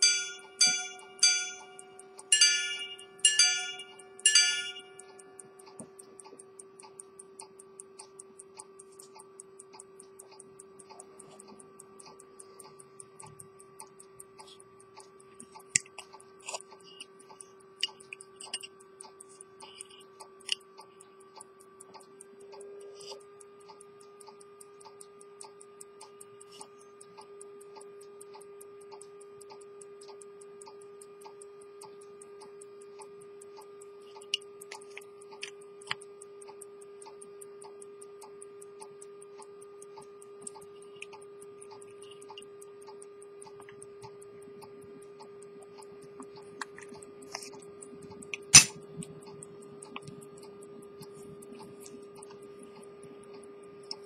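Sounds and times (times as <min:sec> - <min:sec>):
pocket watch ticking: 0:00.0 - 0:54.0
steady hum: 0:00.0 - 0:54.0
metal watch case clicks: 0:48.4 - 0:48.8.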